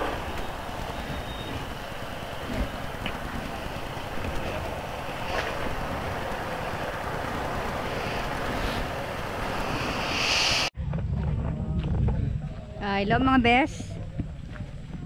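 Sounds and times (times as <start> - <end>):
loud hiss: 0.0 - 10.7
wind rushing on microphone: 0.0 - 12.8.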